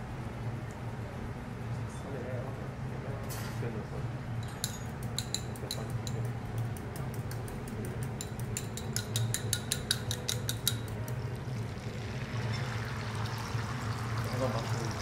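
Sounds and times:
steady low hum: 0.0s - 15.0s
metal utensils clicking: 7.0s - 11.0s.

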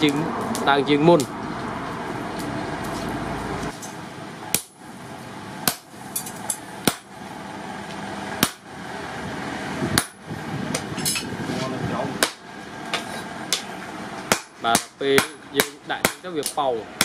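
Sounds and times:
hammer striking hot metal on anvil: 4.5s - 4.8s, 5.6s - 7.1s, 8.4s - 8.7s, 10.0s - 10.2s, 12.2s - 17.0s.

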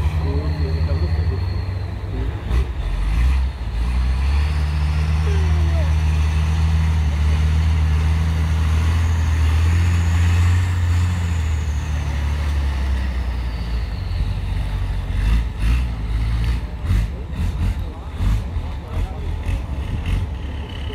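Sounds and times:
truck engine pulling hard: 0.0s - 20.9s.

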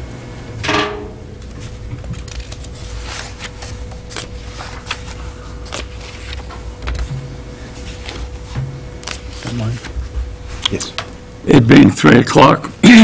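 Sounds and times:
faint steady hum: 0.0s - 13.0s
papers rustling: 1.4s - 11.1s.

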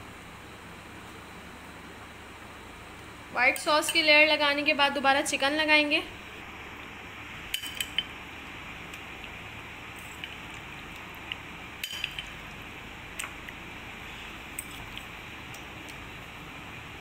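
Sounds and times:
steady background hiss: 0.0s - 17.0s
spoon clinking glass dish: 11.8s - 12.3s.

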